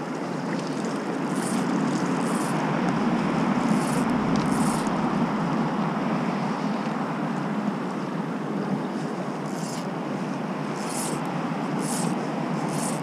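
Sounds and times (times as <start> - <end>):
river water rushing: 0.0 - 7.6.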